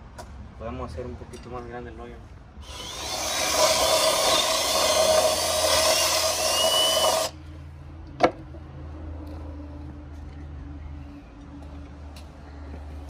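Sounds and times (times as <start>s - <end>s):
cordless drill boring through wood: 2.6s - 7.4s.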